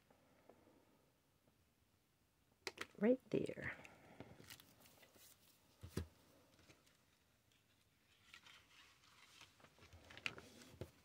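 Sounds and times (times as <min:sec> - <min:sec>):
cardstock taps and rustles: 0:05.8 - 0:06.8.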